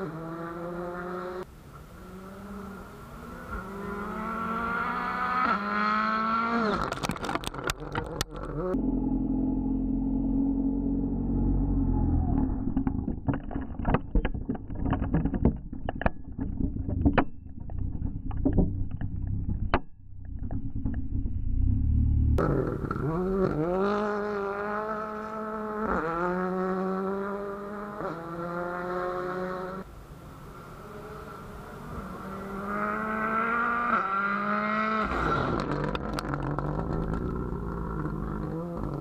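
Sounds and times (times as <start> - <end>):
car engine accelerating through gears: 0.0 - 7.0, 8.0 - 12.7, 21.0 - 29.9, 30.6 - 39.0
rally car engine rumble: 0.0 - 39.0
exhaust cracks and pops: 6.6 - 8.8, 12.3 - 21.5, 35.0 - 39.0.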